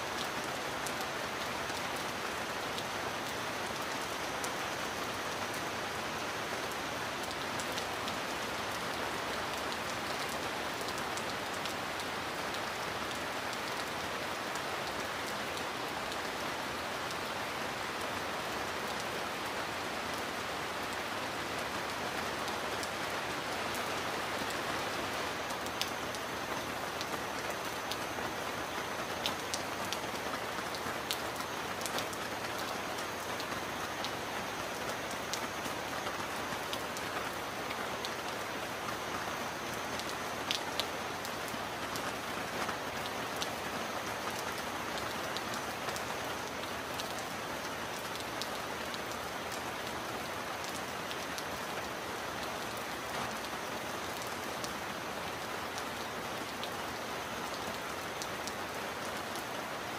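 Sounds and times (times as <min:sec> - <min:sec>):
heavy rain on metal roof: 0:00.0 - 0:59.9.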